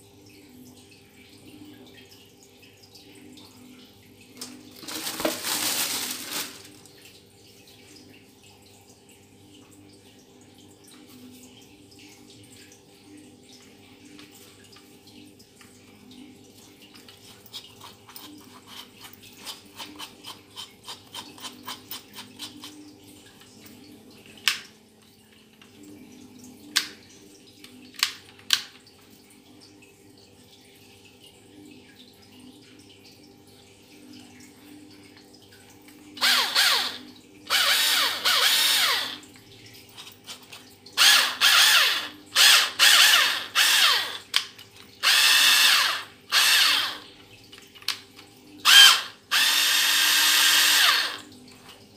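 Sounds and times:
plastic wrapping rustle: 4.7s - 6.9s.

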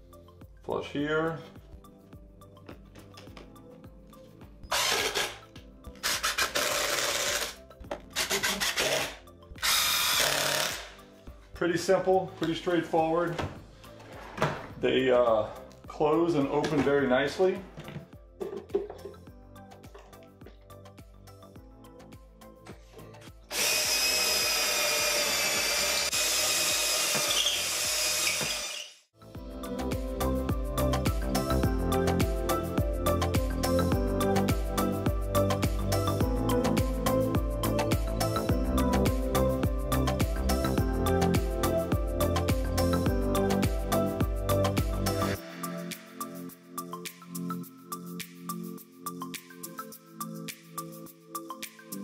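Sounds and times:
cordless drill driving screws: 4.7s - 5.4s, 6.0s - 7.6s, 8.2s - 11.0s, 23.5s - 29.0s.

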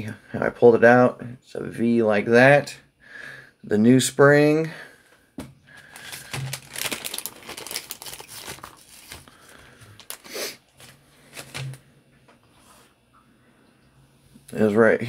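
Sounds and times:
packaging crinkling and rustling: 5.7s - 11.9s.

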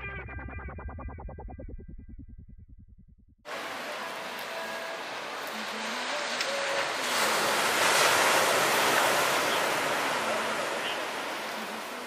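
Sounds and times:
sea surf breaking: 3.5s - 12.0s.

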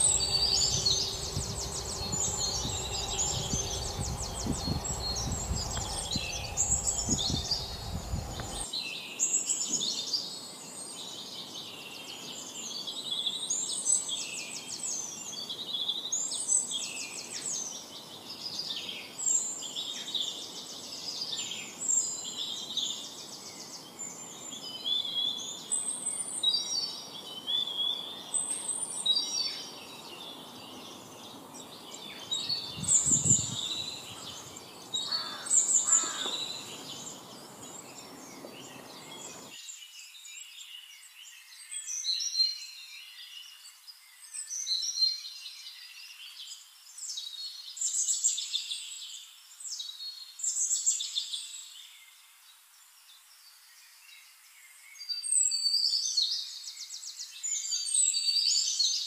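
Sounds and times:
songbirds chirping and trilling: 0.0s - 8.7s, 16.7s - 59.0s.

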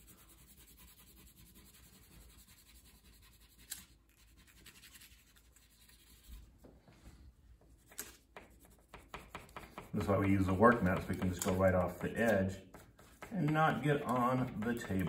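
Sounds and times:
crayon scratching on paper: 0.0s - 6.4s, 7.8s - 15.0s.

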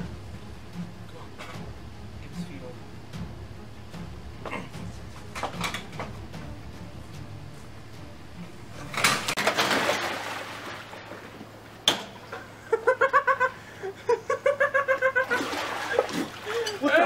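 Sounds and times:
person splashing into pool: 9.4s - 11.4s, 15.2s - 16.8s
rhythmic laughter: 12.4s - 16.8s.

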